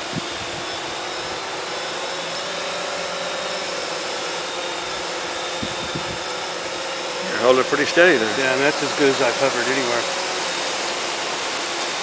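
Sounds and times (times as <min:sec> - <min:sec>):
quadcopter motors whining: 0:00.0 - 0:12.0.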